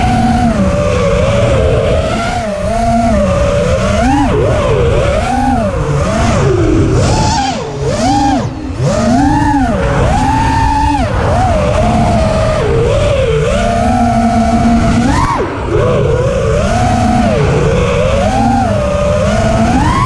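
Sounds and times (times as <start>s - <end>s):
low wind rumble: 0.0s - 20.0s
quadcopter motors whining: 0.0s - 20.0s.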